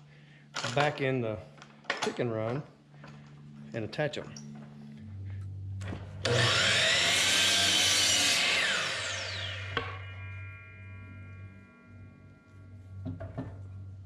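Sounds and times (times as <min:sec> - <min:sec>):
miter saw cutting wood: 0:06.2 - 0:10.2
faint ringing: 0:09.4 - 0:14.0.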